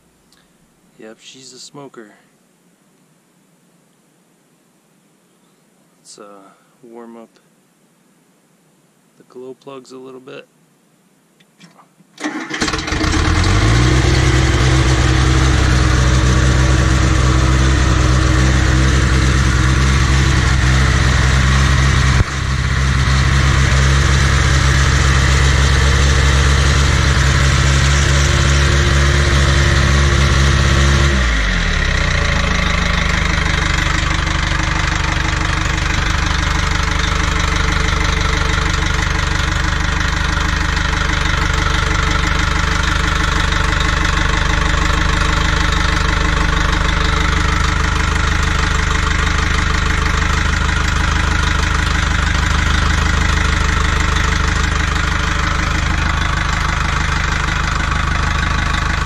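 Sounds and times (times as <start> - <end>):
diesel engine starting and idling: 12.2 - 59.0.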